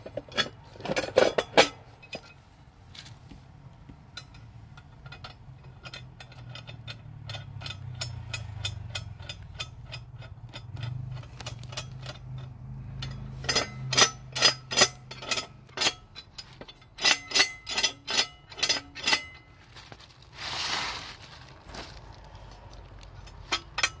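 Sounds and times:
cast iron parts clinking: 0:00.0 - 0:02.4, 0:04.1 - 0:20.0, 0:23.0 - 0:24.0
sharp metal knocks: 0:05.1 - 0:19.5
cast iron grate scraping: 0:05.1 - 0:24.0.

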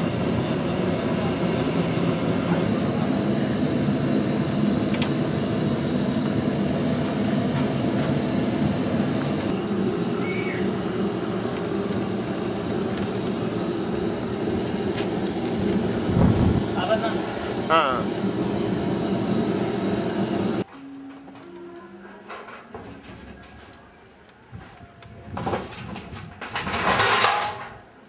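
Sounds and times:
gas burner rushing: 0:00.0 - 0:20.7.

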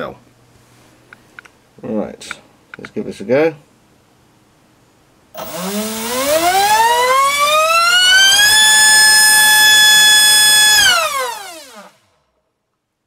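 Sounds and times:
electric motor whine: 0:05.4 - 0:12.1.

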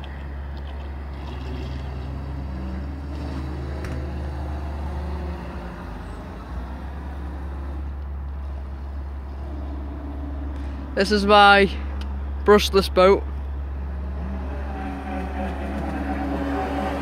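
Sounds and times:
low rumble: 0:04.8 - 0:12.5, 0:13.2 - 0:17.0.

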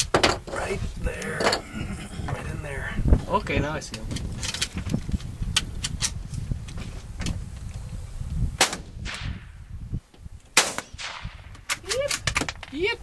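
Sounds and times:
gunshot echo: 0:08.6 - 0:09.6, 0:10.6 - 0:11.6
rifle shots: 0:10.6 - 0:12.3.

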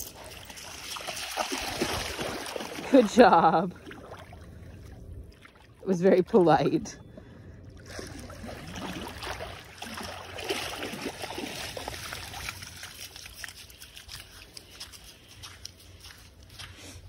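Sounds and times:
dog splashing through water: 0:00.0 - 0:04.4, 0:07.9 - 0:16.7.

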